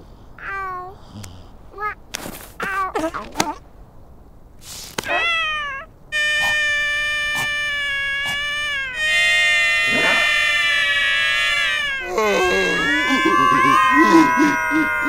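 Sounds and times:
cartoon seal wailing: 5.0 - 15.0.

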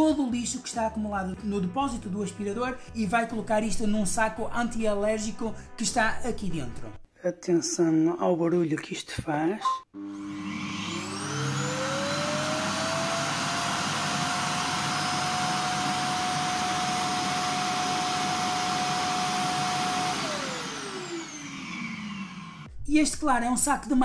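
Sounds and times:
suction motor whining: 10.0 - 22.7.

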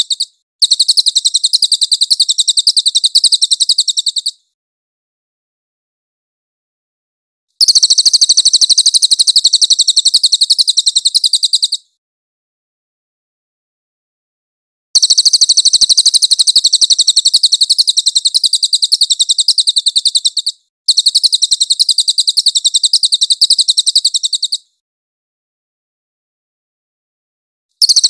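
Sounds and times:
bird singing high trills: 16.2 - 24.7.

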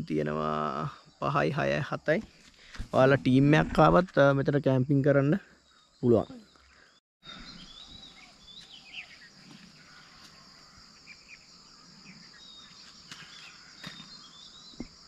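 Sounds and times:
bird chirps: 5.5 - 15.0
pulsing high insect drone: 7.3 - 15.0.

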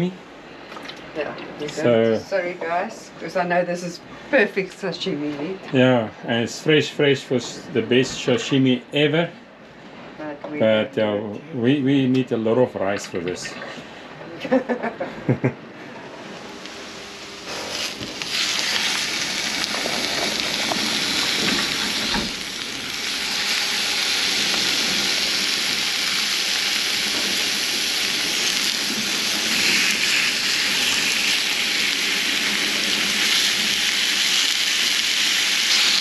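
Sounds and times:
fish sizzling in a pan: 16.8 - 36.0.

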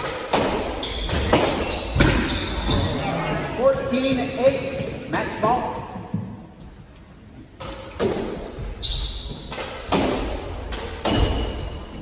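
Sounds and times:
squash ball hits: 0.0 - 2.9, 7.6 - 12.0
shoes squeaking on hardwood floor: 0.7 - 5.2, 8.5 - 12.0.

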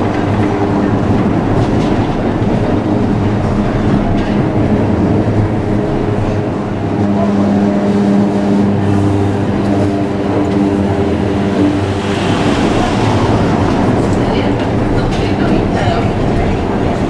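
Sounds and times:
traction motors humming: 0.0 - 17.0
tram wheels rumbling on rails: 0.0 - 17.0.

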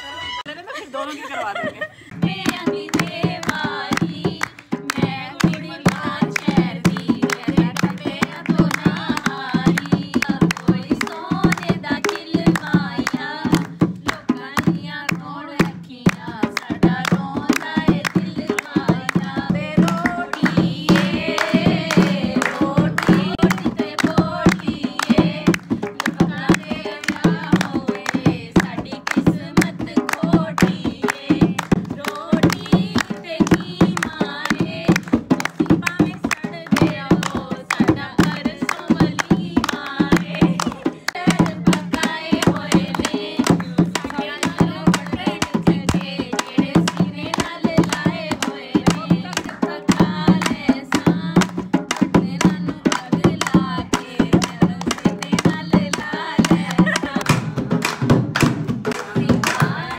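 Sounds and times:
voices singing folk song: 1.9 - 59.9
hand drum rhythm: 2.1 - 59.9.

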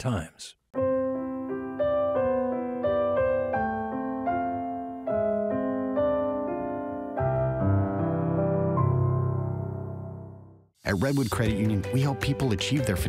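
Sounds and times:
piano music: 0.8 - 13.0.

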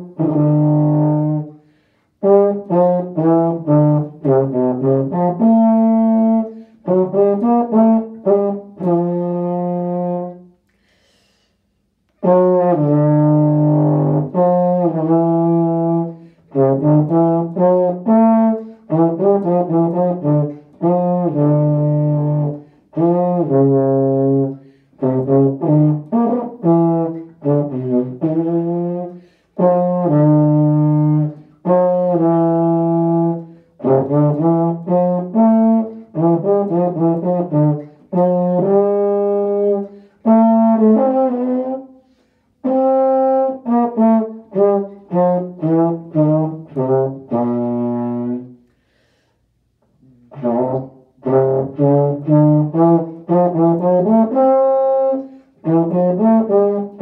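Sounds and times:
player breathing: 1.6 - 2.2, 10.7 - 11.8, 48.6 - 49.6.

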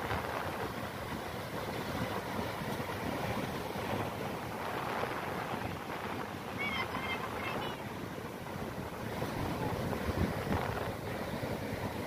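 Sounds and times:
ocean surf breaking on beach: 0.0 - 12.0
wind buffeting microphone: 0.0 - 12.0.

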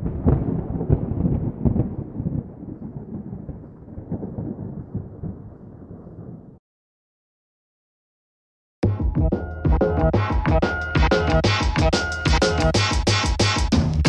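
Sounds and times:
thunder cracking and rumbling: 0.0 - 6.6.

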